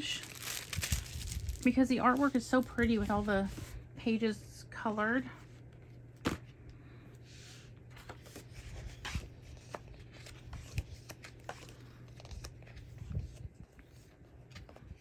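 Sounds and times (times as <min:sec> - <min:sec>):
low steady hum: 0:00.0 - 0:15.0
book pages rustling: 0:00.2 - 0:03.7, 0:07.5 - 0:15.0.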